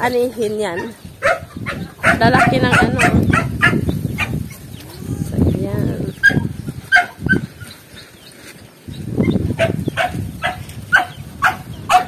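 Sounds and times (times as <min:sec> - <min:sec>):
footsteps rustling through plants: 0:03.0 - 0:11.8
dog barking in sharp yaps: 0:06.2 - 0:07.4, 0:09.6 - 0:12.0.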